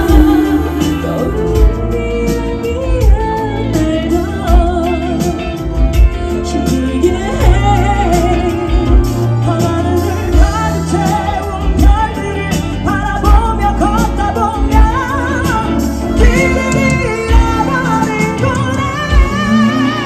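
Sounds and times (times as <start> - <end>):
amplified band: 0.0 - 20.0
women singing with vibrato: 0.0 - 20.0.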